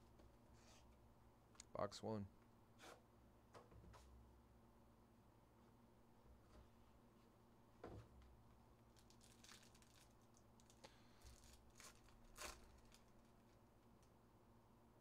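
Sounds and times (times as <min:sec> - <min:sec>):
foil wrapper crinkling and tearing: 0:08.9 - 0:13.6.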